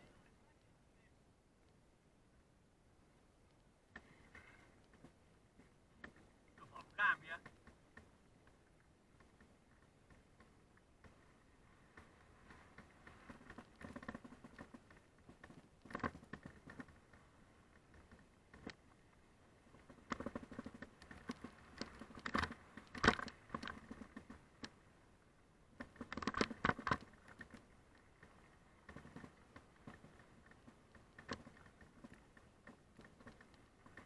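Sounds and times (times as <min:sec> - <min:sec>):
mountain bike rattling over gravel: 0:12.0 - 0:19.0, 0:19.7 - 0:24.8, 0:25.8 - 0:34.0.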